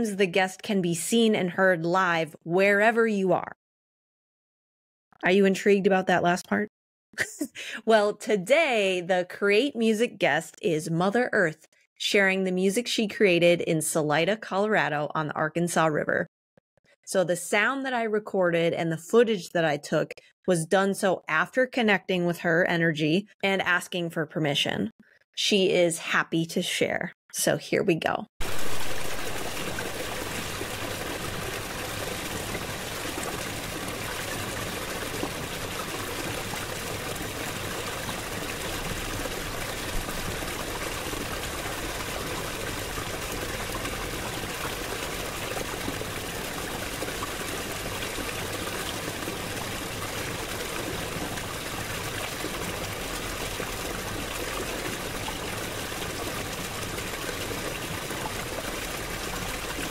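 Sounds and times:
stream trickling over stones: 28.4 - 59.9.

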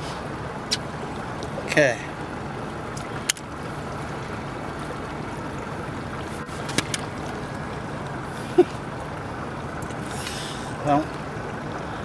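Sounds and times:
boat hum and water rush: 0.0 - 12.0.

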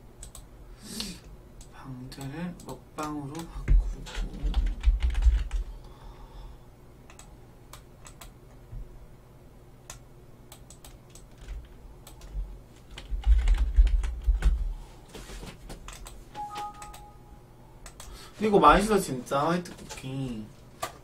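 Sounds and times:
keyboard typing: 2.6 - 5.7, 10.5 - 14.6, 15.9 - 17.2
two-note tone: 16.4 - 17.6.

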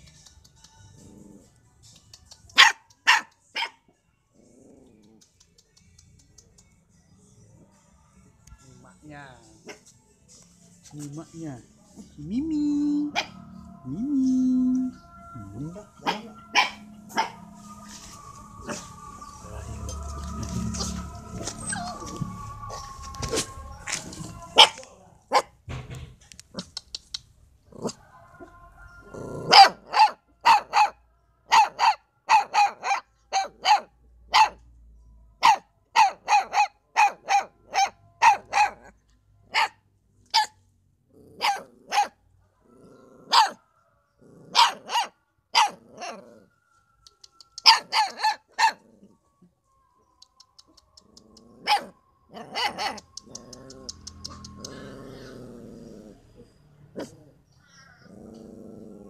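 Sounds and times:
puppy barking in high yaps: 2.5 - 3.8, 13.1 - 13.4, 16.0 - 17.5, 24.5 - 25.5, 29.4 - 34.6, 35.4 - 38.9, 39.5 - 40.6, 41.4 - 42.2, 43.3 - 43.6, 44.5 - 46.2, 47.6 - 48.8, 51.6 - 54.8.

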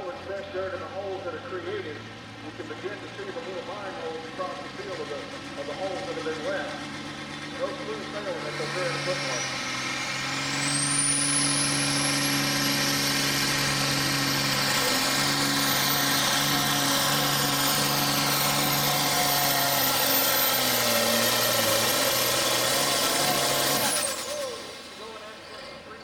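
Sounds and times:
tractor diesel engine at full throttle: 0.0 - 26.0.

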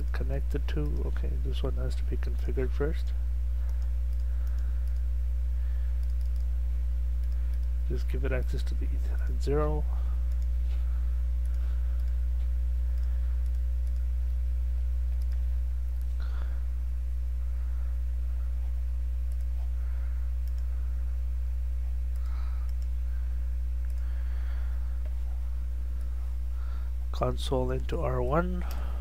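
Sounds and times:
low electrical hum: 0.0 - 29.0
computer mouse clicks: 3.6 - 5.1, 6.0 - 6.5, 7.2 - 7.8, 10.3 - 10.5, 11.4 - 12.2, 12.9 - 14.1, 15.2 - 16.2, 19.3 - 19.6, 20.4 - 20.7, 22.1 - 23.0, 23.8 - 24.1.

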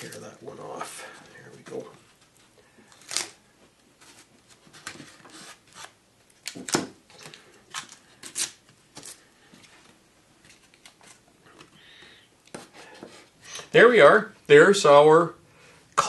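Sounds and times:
tape ripping and rubbing: 2.9 - 3.4, 4.1 - 6.9, 7.7 - 9.2.

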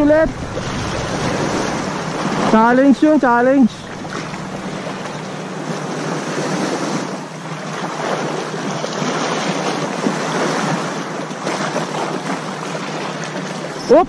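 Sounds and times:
wind on microphone: 0.0 - 10.9
small sea waves lapping: 0.0 - 14.0.

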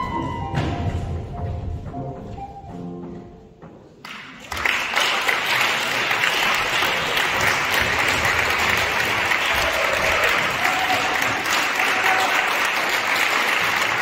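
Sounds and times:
music: 0.0 - 4.2
audience applause: 4.0 - 14.0.

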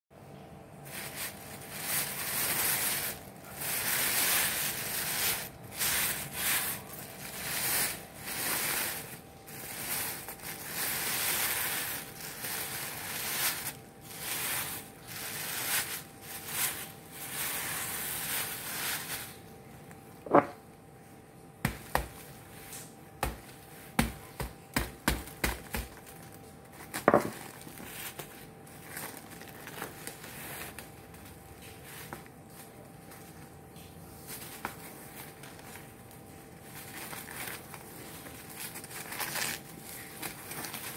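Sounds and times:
plastic bag rustling: 0.8 - 40.9
clay crust knocking and cracking: 21.6 - 26.1.

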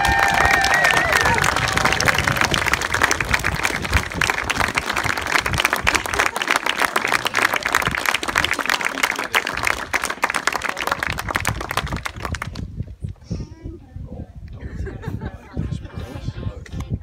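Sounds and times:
crowd clapping: 0.0 - 12.7.

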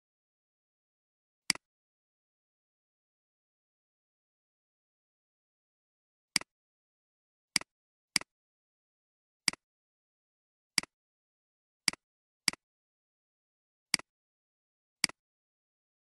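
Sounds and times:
computer mouse clicks: 7.6 - 8.3.

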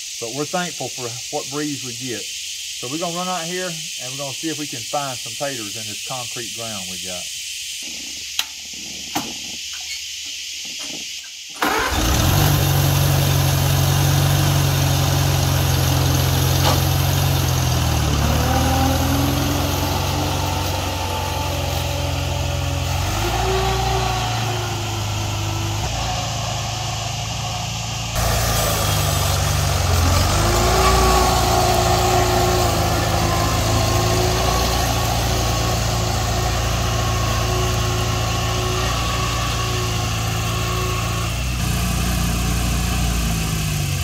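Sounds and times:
tractor engine running: 10.8 - 44.0.

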